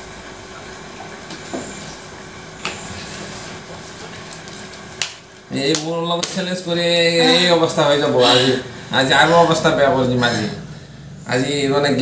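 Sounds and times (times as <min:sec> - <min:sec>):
room noise hiss: 0:00.0 - 0:12.0
faint low hum: 0:05.5 - 0:12.0.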